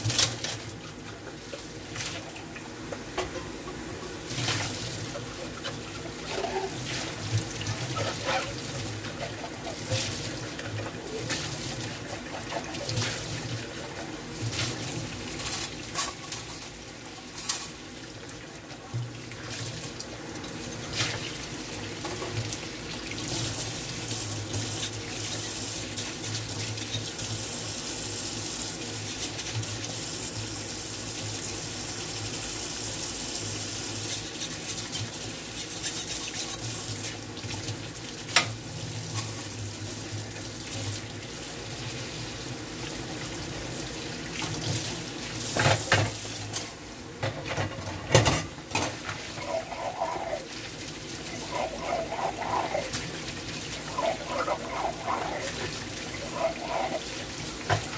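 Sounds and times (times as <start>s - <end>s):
tap water running into sink: 0.0s - 27.3s, 41.9s - 57.9s.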